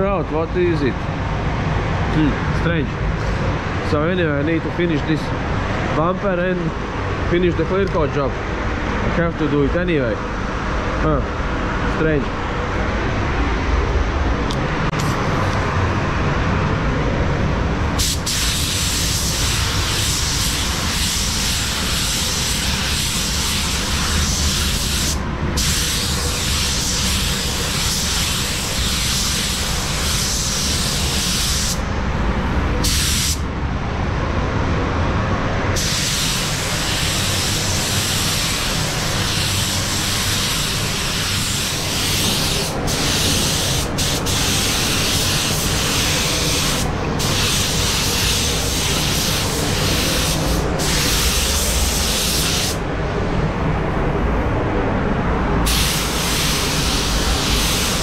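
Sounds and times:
steady low rumble: 0:00.0 - 0:58.0
spray gun hissing: 0:18.0 - 0:31.9, 0:32.8 - 0:33.4, 0:35.8 - 0:52.8, 0:55.6 - 0:58.0.

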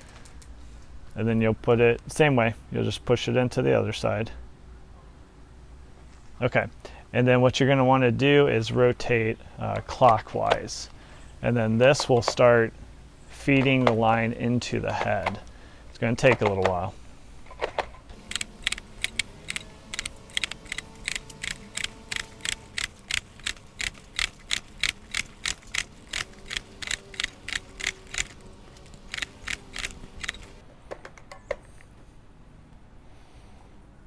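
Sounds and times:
trimmer head clicking: 0:18.2 - 0:28.4, 0:29.0 - 0:30.5.

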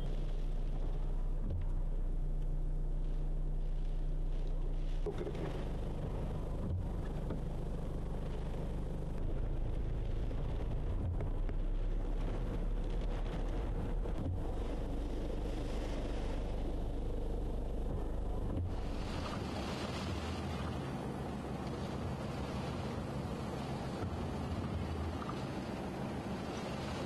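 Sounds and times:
wind buffeting microphone: 0:05.1 - 0:27.0
wind hissing through palm tree: 0:11.8 - 0:27.0.

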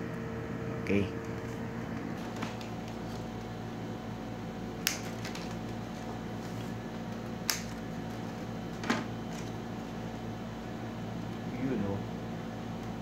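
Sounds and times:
steady hum: 0:00.0 - 0:13.0
scissors snipping: 0:04.8 - 0:05.2, 0:07.4 - 0:07.8.

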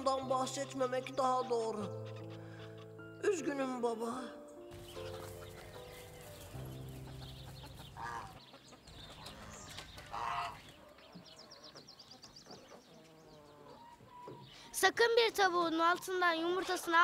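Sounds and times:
hens clucking: 0:01.5 - 0:03.0, 0:04.8 - 0:14.7, 0:16.4 - 0:17.0.

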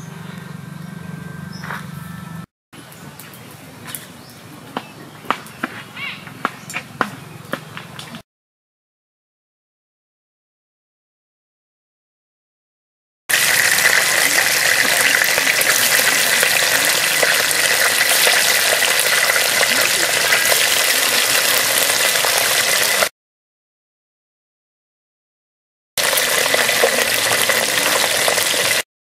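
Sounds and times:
fish sizzling in hot oil: 0:13.3 - 0:23.1, 0:26.0 - 0:28.8.

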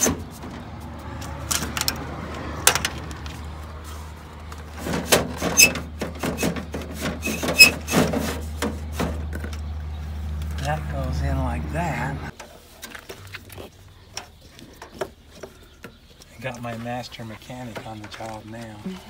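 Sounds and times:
handling clicks and knocks: 0:00.0 - 0:03.4, 0:12.3 - 0:19.0.

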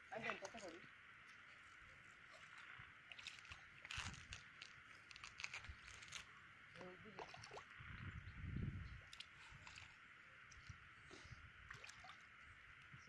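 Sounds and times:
hands sloshing in muddy water: 0:02.2 - 0:06.3, 0:09.0 - 0:12.4.

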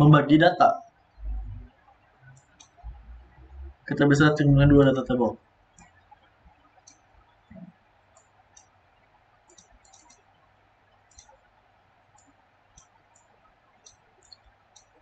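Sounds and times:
computer mouse clicks: 0:02.4 - 0:02.9, 0:05.8 - 0:15.0.

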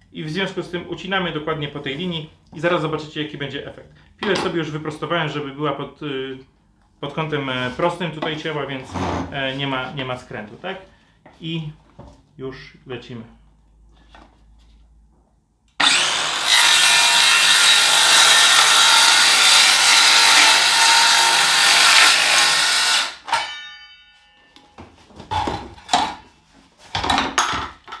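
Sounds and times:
circular saw cutting: 0:15.8 - 0:23.5.

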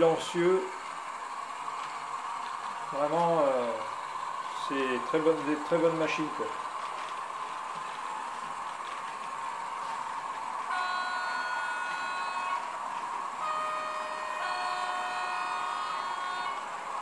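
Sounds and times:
model locomotive engine hum: 0:00.0 - 0:17.0
two-tone train horn blasts: 0:10.7 - 0:12.8, 0:13.4 - 0:16.8.

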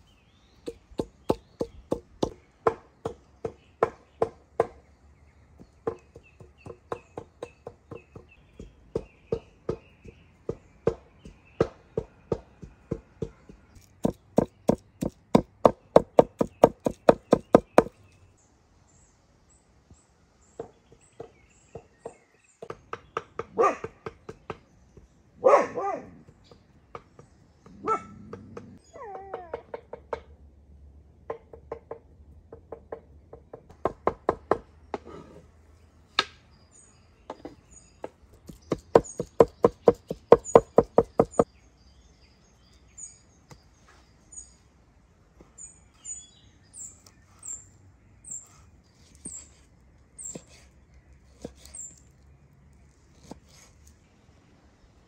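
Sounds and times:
cleaver chopping on wooden board: 0:00.6 - 0:04.8, 0:05.6 - 0:17.9, 0:37.3 - 0:41.5.

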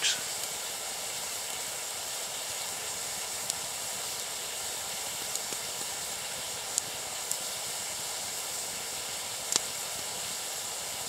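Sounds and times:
water boiling and bubbling: 0:00.0 - 0:11.0
faint ticks: 0:03.4 - 0:03.6, 0:05.1 - 0:06.0, 0:09.5 - 0:09.7.

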